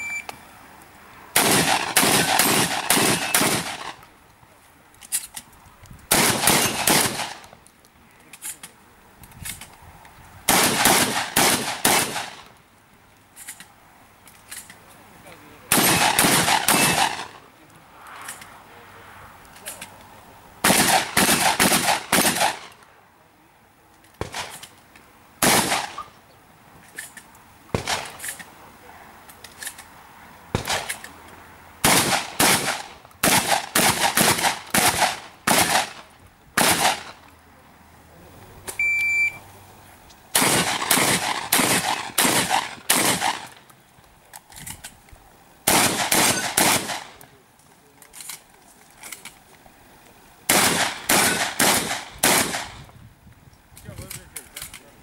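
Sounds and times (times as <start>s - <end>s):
shotgun shots: 1.4s - 4.0s, 6.1s - 7.5s, 10.5s - 12.5s, 15.7s - 17.4s, 20.6s - 22.8s, 24.2s - 24.6s, 25.4s - 26.1s, 27.7s - 28.4s, 30.5s - 31.0s, 31.8s - 37.2s, 40.3s - 43.6s, 45.6s - 47.2s, 50.5s - 52.8s.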